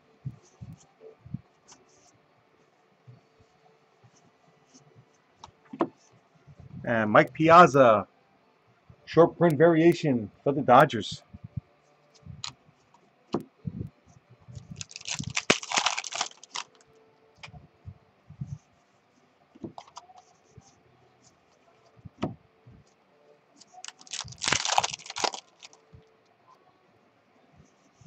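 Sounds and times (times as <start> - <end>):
plastic wrapper crinkling and tearing: 14.8 - 16.8, 23.7 - 25.9.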